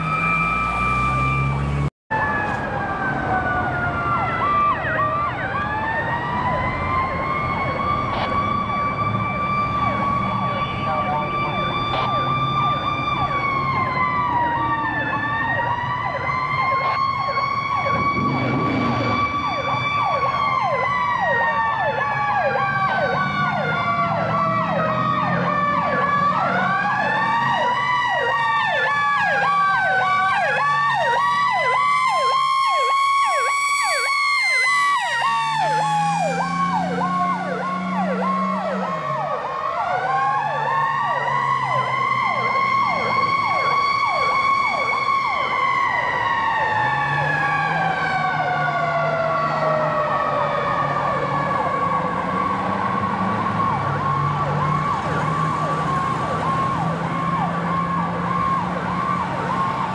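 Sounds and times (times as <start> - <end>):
siren cycling rapidly: 0.0 - 59.9
sirens wailing: 0.0 - 59.9.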